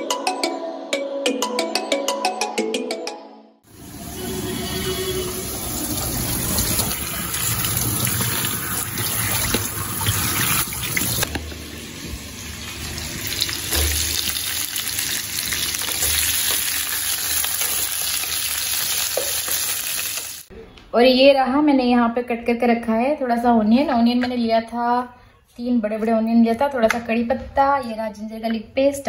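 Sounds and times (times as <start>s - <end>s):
potatoes sizzling in oil: 3.7s - 20.5s.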